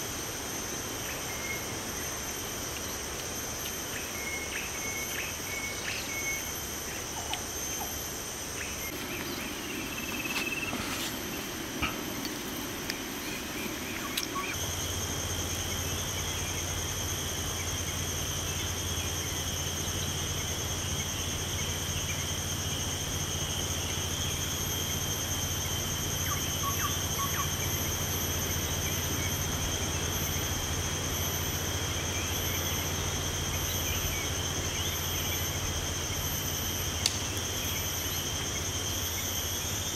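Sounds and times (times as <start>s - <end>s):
insects buzzing: 0.0s - 39.9s
steady low hum: 0.0s - 39.9s.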